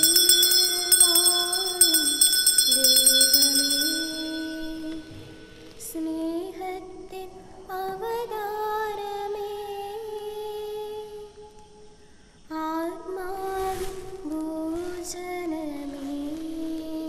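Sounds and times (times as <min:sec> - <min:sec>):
altar bells ringing: 0:00.0 - 0:06.0
slow hymn singing: 0:00.0 - 0:11.8, 0:12.5 - 0:17.0.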